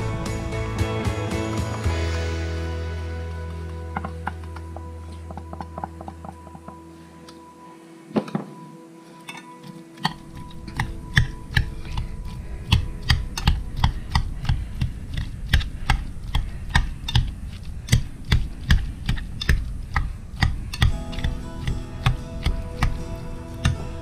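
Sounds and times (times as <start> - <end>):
dull thuds of mashed potatoes: 10.0 - 23.0.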